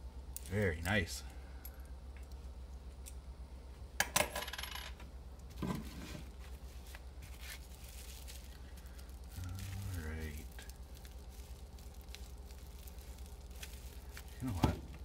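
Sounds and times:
coins clinking on wooden table: 0:04.1 - 0:05.0
bubble wrap parcel rustling: 0:05.8 - 0:15.0.

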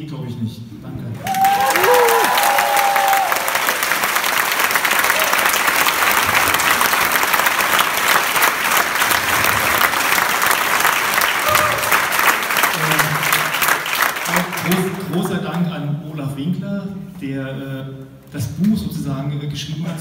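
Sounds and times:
crowd applauding: 0:01.2 - 0:15.6.

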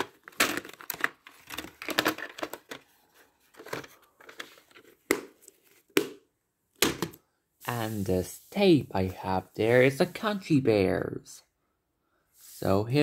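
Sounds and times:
plastic case clicks and rattles: 0:00.0 - 0:02.8.

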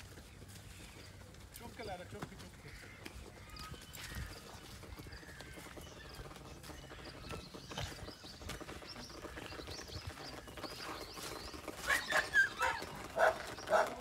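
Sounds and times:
birds chirping faintly: 0:00.0 - 0:14.0
dog barking: 0:11.9 - 0:14.0.

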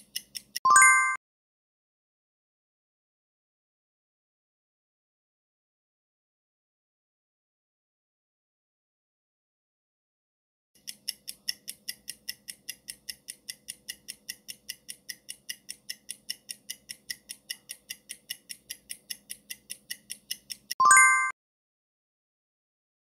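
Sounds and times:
fast clock ticking: 0:00.0 - 0:00.6, 0:10.8 - 0:20.8.

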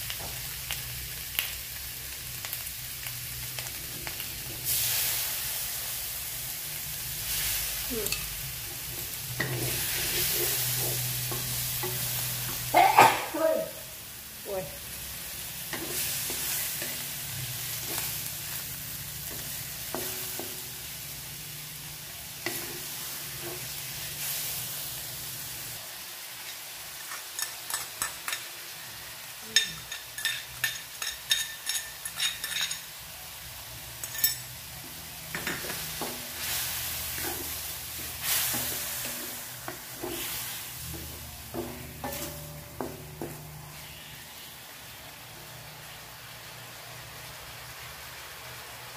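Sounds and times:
fish sizzling in a wok: 0:00.0 - 0:48.9
wooden spatula scraping: 0:09.4 - 0:12.0, 0:35.6 - 0:44.2
metal spoon clinking ceramic bowl: 0:29.6 - 0:32.8.

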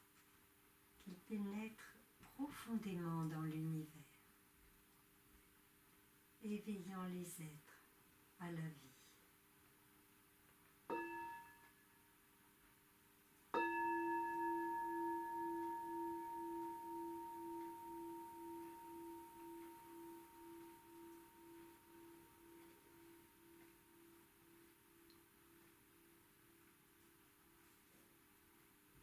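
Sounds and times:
meditation bell ringing: 0:10.9 - 0:12.0, 0:13.6 - 0:24.7.

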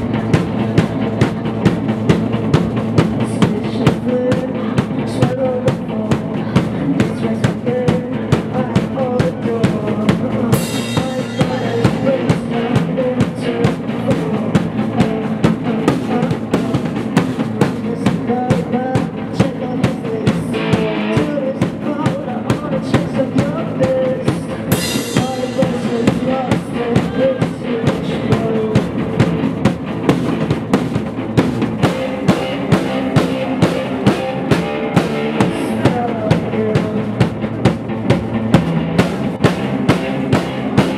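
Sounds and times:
electric guitar: 0:00.0 - 0:40.9
steady drum beat: 0:00.0 - 0:40.9.

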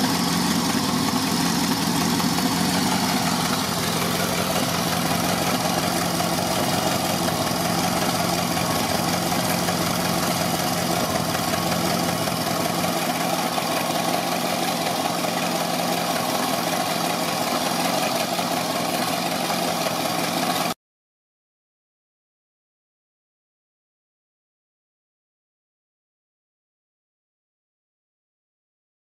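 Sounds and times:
car engine idling: 0:00.0 - 0:20.8.

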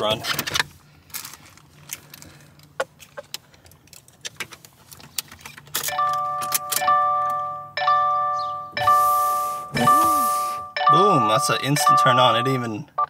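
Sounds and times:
car keys jangling: 0:03.0 - 0:07.4
electronic chime: 0:06.1 - 0:12.7.

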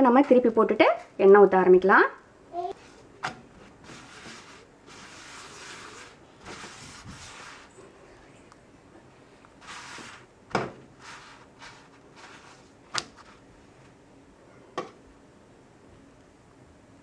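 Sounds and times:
cloth rubbing bread in pan: 0:02.8 - 0:07.8, 0:09.6 - 0:13.5.

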